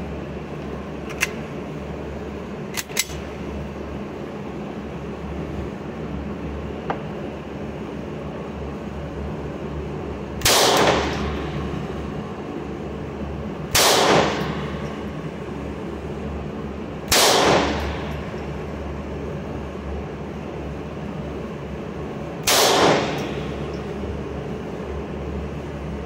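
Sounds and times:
pistol shots echoing indoors: 0:10.4 - 0:11.6, 0:13.7 - 0:14.8, 0:17.1 - 0:18.3, 0:22.4 - 0:23.6.

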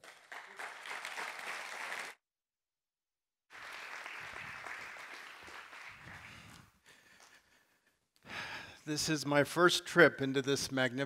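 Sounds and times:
congregation applauding: 0:00.0 - 0:02.2, 0:03.5 - 0:06.8.

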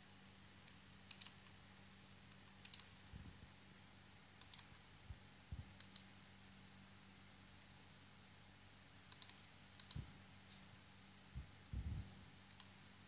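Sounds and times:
faint electrical hum: 0:00.0 - 0:13.0
computer mouse clicking: 0:00.6 - 0:01.6, 0:02.3 - 0:02.9, 0:04.3 - 0:04.8, 0:05.8 - 0:06.1, 0:09.1 - 0:10.1, 0:12.4 - 0:12.8.

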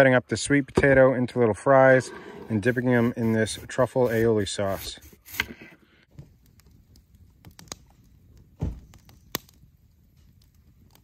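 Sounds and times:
fire crackles and pops: 0:06.1 - 0:11.0.

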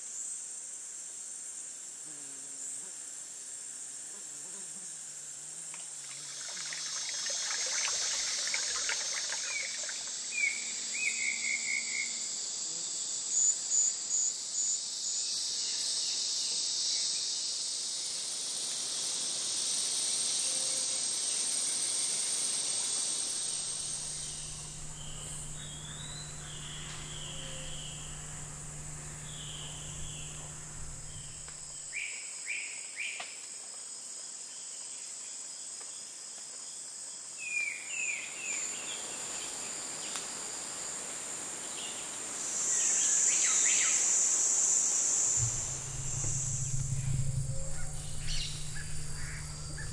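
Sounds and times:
high insect chorus: 0:00.0 - 0:49.9
low steady hum: 0:23.4 - 0:31.9, 0:45.4 - 0:49.9
chirping bird calls: 0:23.7 - 0:31.8.

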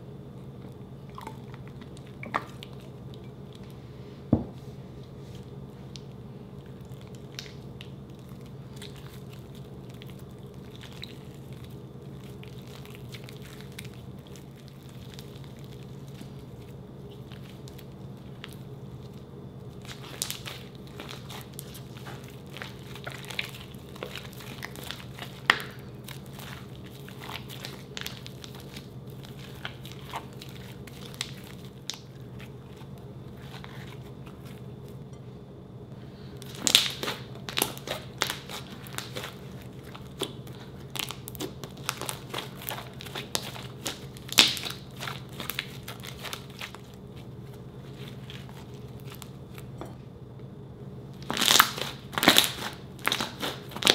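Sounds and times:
low steady hum: 0:00.0 - 0:53.9.

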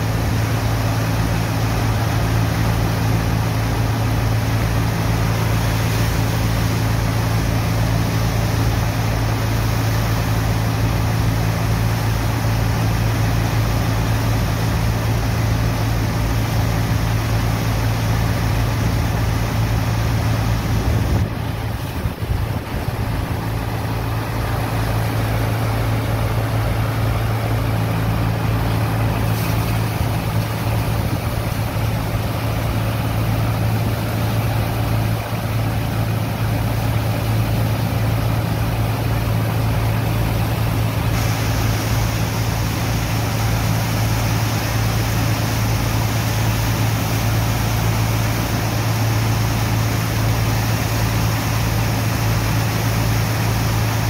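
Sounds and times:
pump engine droning: 0:00.0 - 0:54.0
water jets spraying into sand: 0:00.0 - 0:54.0.

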